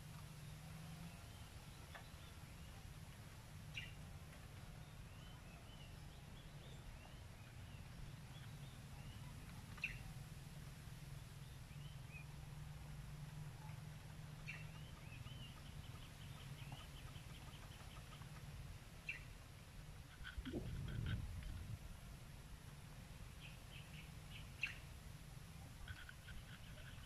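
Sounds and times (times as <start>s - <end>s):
faint low hum: 0.0s - 27.0s
birds chirping: 0.4s - 4.0s, 4.6s - 10.2s, 13.6s - 21.8s, 23.2s - 27.0s.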